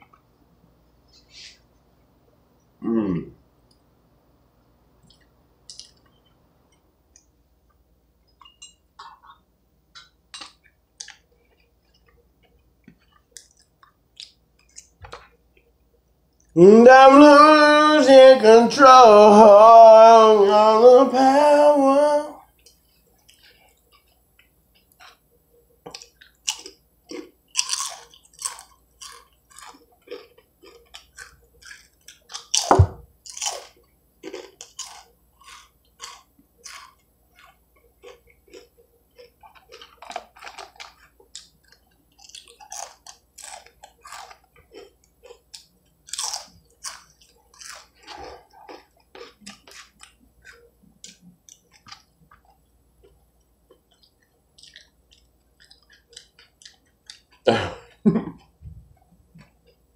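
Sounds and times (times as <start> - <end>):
person chewing crunchy food: 5.0 - 16.6, 22.4 - 59.9
loud thump: 32.7 - 33.1.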